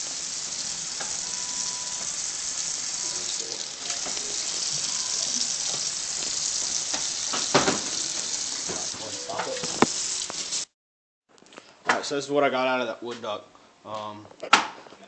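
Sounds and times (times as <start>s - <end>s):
tap running into metal sink: 6.9s - 8.0s, 8.6s - 10.0s.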